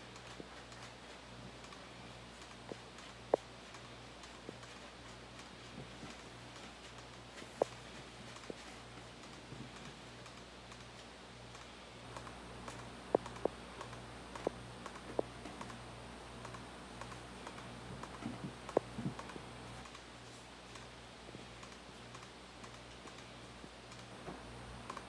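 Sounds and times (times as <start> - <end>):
faint low hum: 0.0 - 25.0
laptop keyboard clicks: 11.5 - 15.8.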